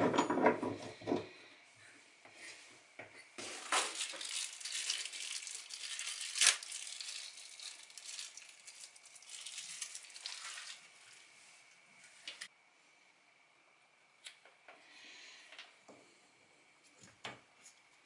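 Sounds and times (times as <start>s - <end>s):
sharp plastic crackle: 3.4s - 10.9s
plastic packaging crinkling: 3.4s - 11.2s.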